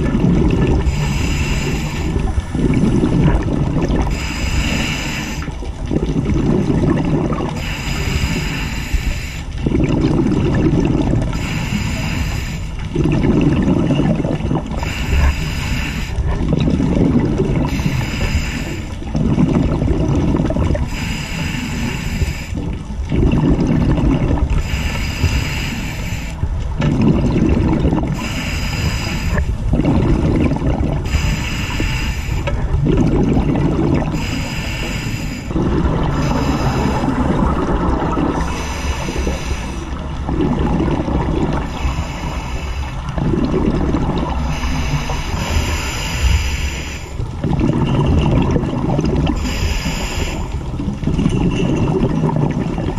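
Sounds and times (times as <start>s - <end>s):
exhaled bubbles bubbling: 0.0s - 52.9s
regulator hissing inhale: 0.8s - 2.9s, 4.0s - 5.6s, 7.6s - 9.6s, 11.2s - 12.9s, 14.8s - 16.2s, 17.7s - 19.0s, 20.9s - 22.6s, 24.6s - 26.4s, 28.2s - 29.6s, 31.0s - 32.6s, 34.1s - 37.3s, 38.4s - 40.0s, 41.7s - 43.2s, 44.4s - 47.2s, 49.3s - 50.7s.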